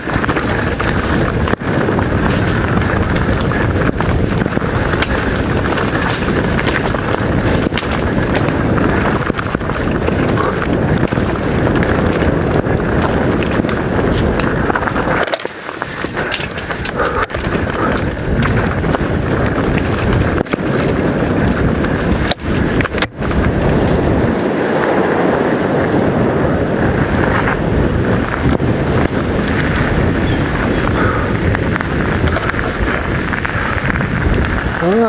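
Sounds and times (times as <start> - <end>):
tyres rolling over rock: 0.0 - 25.0
bike rattling: 0.0 - 35.0
wind rushing over microphone: 0.0 - 35.0.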